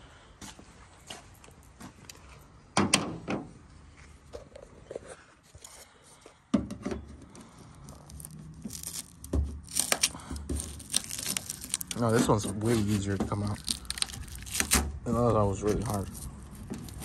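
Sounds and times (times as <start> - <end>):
plastic tool scraping and knocking: 8.2 - 14.9.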